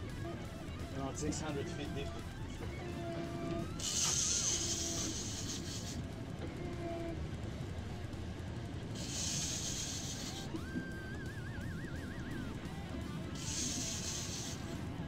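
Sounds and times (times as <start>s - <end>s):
electric guitar music: 0.0s - 15.0s
outboard motor rumble: 0.0s - 15.0s
high hiss: 9.0s - 10.6s, 13.4s - 14.8s.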